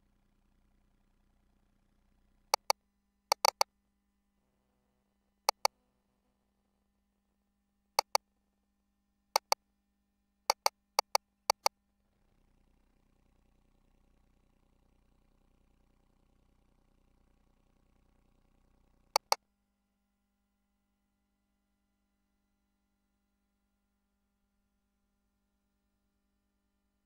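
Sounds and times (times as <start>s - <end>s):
console control clicks: 3.3s - 3.6s, 8.0s - 8.2s, 9.4s - 9.6s, 10.5s - 11.7s, 19.2s - 19.4s.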